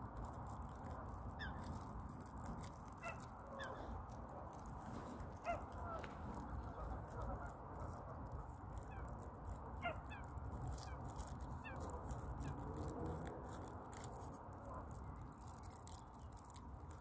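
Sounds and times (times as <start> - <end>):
waterfowl calling: 3.0 - 3.9.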